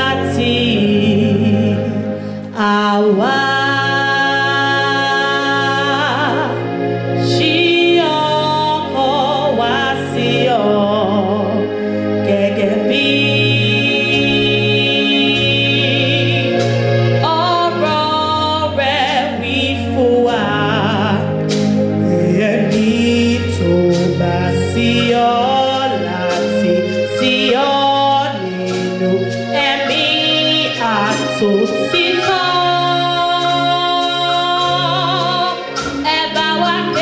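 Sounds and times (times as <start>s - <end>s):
instrumental backing: 0.0s - 37.0s
choir singing a hymn: 12.3s - 18.0s, 22.0s - 37.0s
drum or cymbal strikes: 14.0s - 17.0s.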